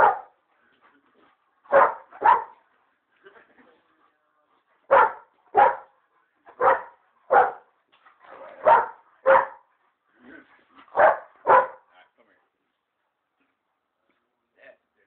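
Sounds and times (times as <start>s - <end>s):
dog barking: 0.0s - 0.4s, 1.7s - 2.6s, 4.9s - 7.7s, 8.4s - 9.7s, 10.9s - 11.9s.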